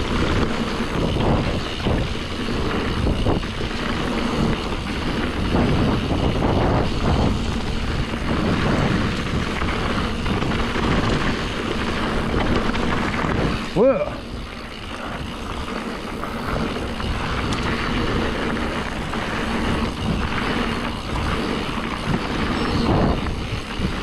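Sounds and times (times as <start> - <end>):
bike knocks and rattles: 0.0 - 24.0
tyres rolling on dirt: 0.0 - 24.0
wind buffeting microphone: 0.0 - 24.0.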